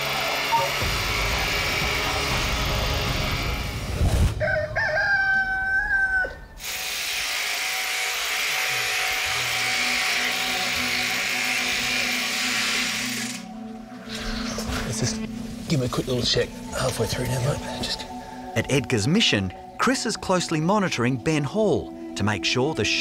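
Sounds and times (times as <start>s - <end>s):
electric shears buzzing: 0.0s - 4.0s, 6.6s - 13.6s
rooster crowing: 4.4s - 6.6s.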